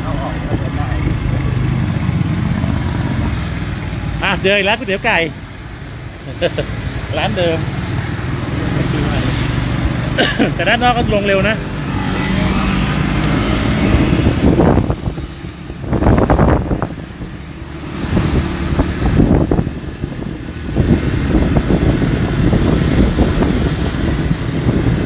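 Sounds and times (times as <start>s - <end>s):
motorcycle engine: 0.0s - 25.0s
road noise on wet road: 0.0s - 25.0s
wind buffeting microphone: 11.1s - 25.0s.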